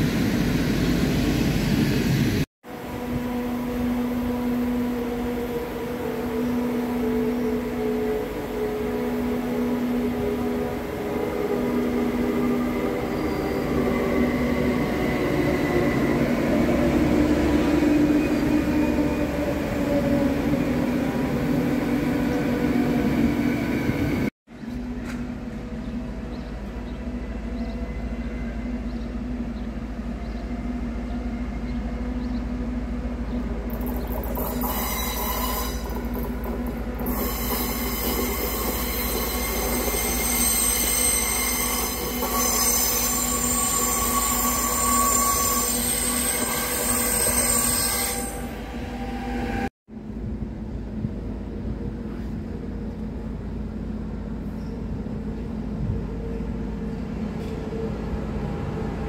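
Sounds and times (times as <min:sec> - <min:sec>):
train rolling past rumble: 0:00.0 - 0:59.0
high-pitched wheel squeal: 0:34.4 - 0:36.2, 0:37.0 - 0:49.7.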